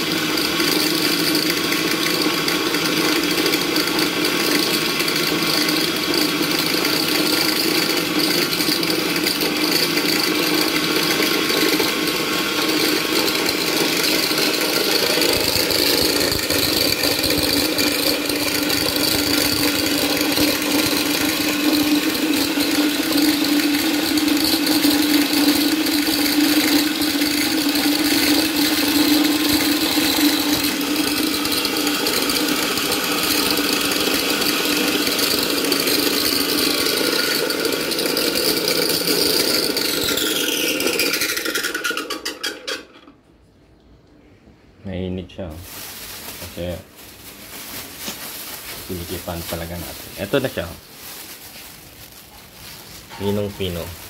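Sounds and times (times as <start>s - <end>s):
electric grinder whirring: 0.0s - 43.1s, 48.4s - 50.8s, 52.9s - 54.0s.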